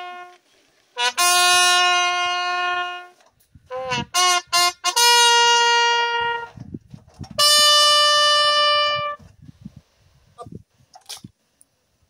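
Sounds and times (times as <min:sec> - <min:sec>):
bugle call: 0:00.0 - 0:00.4, 0:01.0 - 0:06.6, 0:07.4 - 0:09.2.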